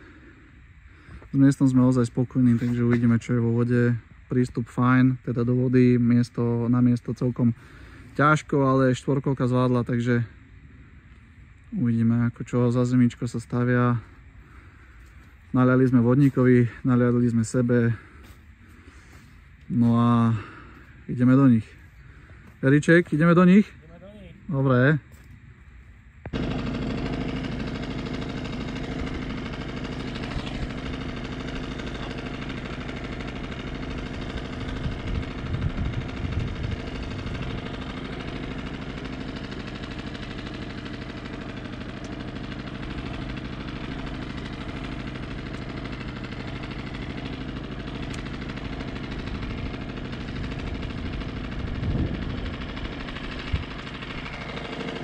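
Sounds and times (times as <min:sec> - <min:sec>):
small outboard motor running: 0:26.2 - 0:55.0.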